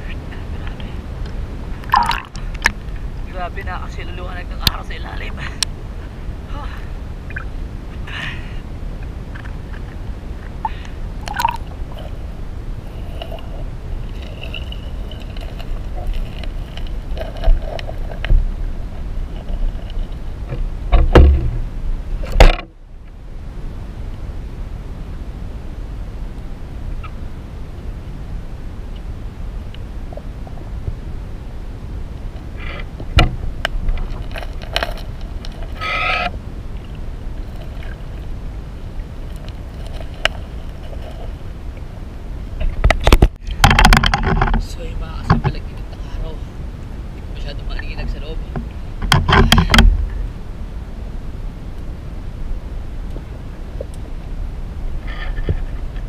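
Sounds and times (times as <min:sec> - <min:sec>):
underwater water rumble: 0:00.0 - 0:56.0
underwater clicks and knocks: 0:01.8 - 0:02.8, 0:11.2 - 0:11.7, 0:14.1 - 0:21.6, 0:22.2 - 0:22.7, 0:33.0 - 0:38.0, 0:42.6 - 0:44.6, 0:45.2 - 0:45.6, 0:48.5 - 0:50.2
loud thumps: 0:20.5 - 0:22.7, 0:42.6 - 0:44.7, 0:48.6 - 0:50.2.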